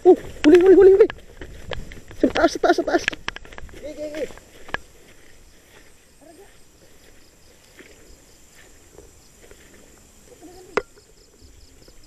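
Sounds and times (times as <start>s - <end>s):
rustling in leafy brush: 0.0s - 10.8s.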